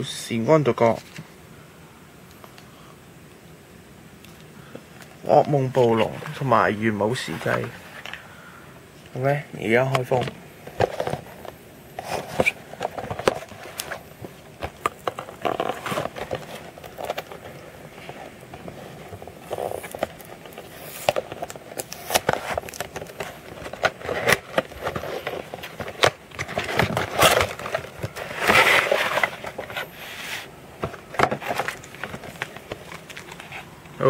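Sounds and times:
plastic packaging crinkling: 10.0 - 34.0
cardboard box clicks and scrapes: 10.7 - 14.0, 18.6 - 33.6.

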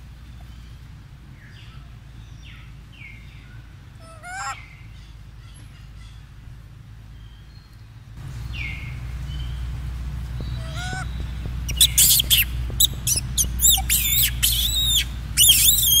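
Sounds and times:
steady low rumble: 0.0 - 16.0
high-pitched squeaky animal calls: 4.0 - 4.6, 10.6 - 11.1, 11.7 - 16.0.

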